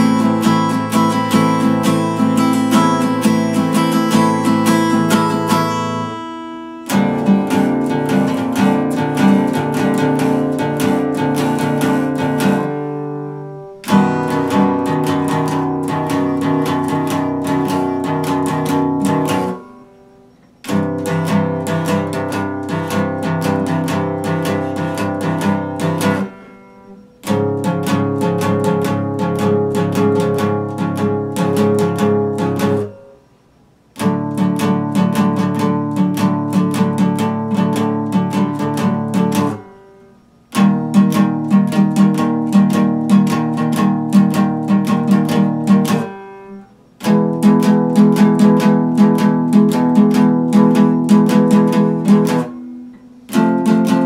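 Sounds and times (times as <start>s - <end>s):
acoustic guitar chords: 0.0s - 54.0s.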